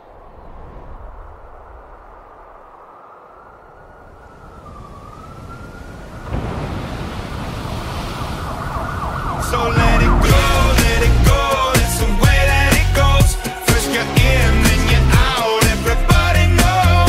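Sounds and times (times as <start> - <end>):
dense falling glides: 0.0 - 12.2
thin siren-like wailing tone: 3.0 - 6.9, 7.6 - 10.8
music with a heavy beat: 9.8 - 17.0.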